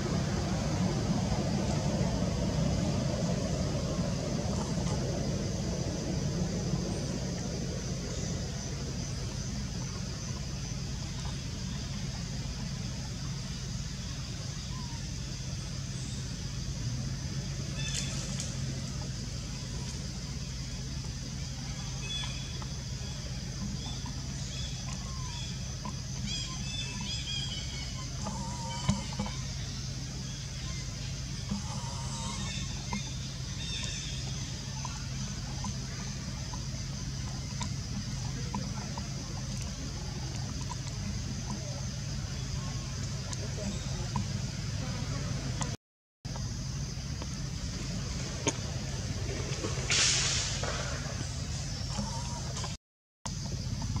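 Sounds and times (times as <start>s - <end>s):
continuous high drone: 0.0s - 22.2s
low background rumble: 0.0s - 54.0s
steady low hum: 0.0s - 54.0s
wavering call: 26.2s - 29.5s.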